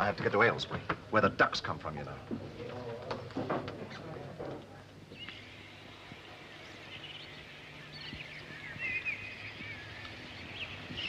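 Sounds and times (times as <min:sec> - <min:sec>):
low steady hum: 0:01.3 - 0:11.0
birds chirping: 0:04.8 - 0:11.0.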